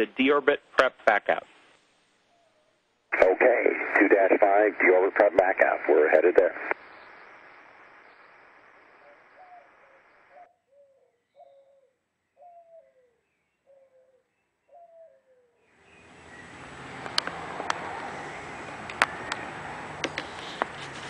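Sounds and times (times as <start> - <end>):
dove cooing: 9.0 - 15.4
sharp clicks: 17.0 - 18.1.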